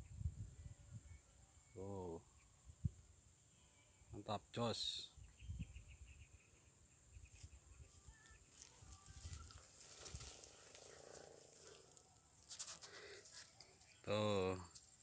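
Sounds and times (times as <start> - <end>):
wind rumble on microphone: 0.0 - 1.3, 5.2 - 6.3
soft rustle: 7.3 - 14.0.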